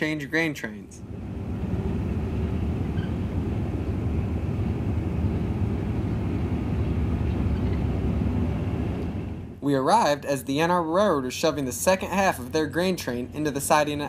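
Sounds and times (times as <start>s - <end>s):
freight train wheels rumbling on rail: 1.0s - 9.6s.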